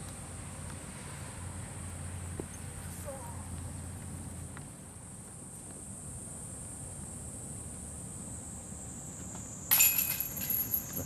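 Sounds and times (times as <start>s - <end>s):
insects buzzing: 0.0s - 11.0s
disc striking metal chains: 9.7s - 11.0s.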